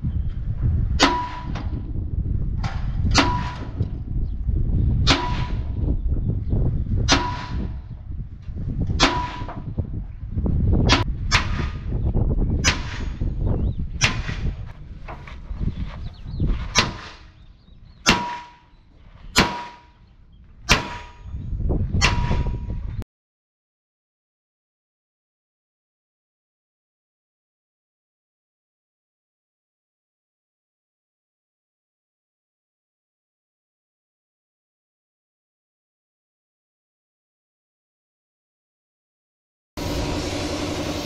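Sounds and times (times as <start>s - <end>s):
low rumble: 0.0s - 18.0s, 39.8s - 41.0s
sledgehammer clanging on steel: 1.0s - 1.8s, 2.6s - 4.0s, 8.9s - 9.7s, 18.0s - 20.0s, 20.7s - 21.4s, 22.0s - 22.8s.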